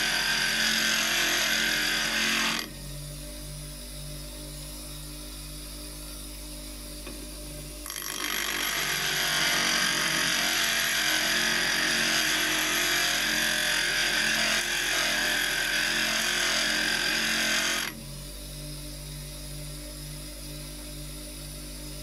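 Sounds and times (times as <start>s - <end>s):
chisel grinding on grinder wheel: 0.0s - 2.7s, 7.8s - 18.0s
grinder motor hum: 0.0s - 22.0s.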